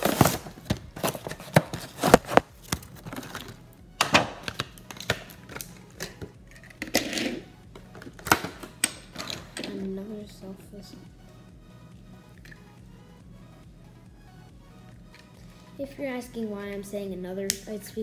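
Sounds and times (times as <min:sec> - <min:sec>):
plastic blister packaging crackling: 0:00.0 - 0:07.0.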